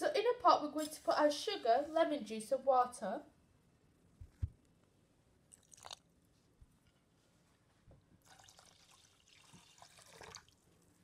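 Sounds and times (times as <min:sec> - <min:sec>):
water pouring into saucepan: 0:08.2 - 0:10.7.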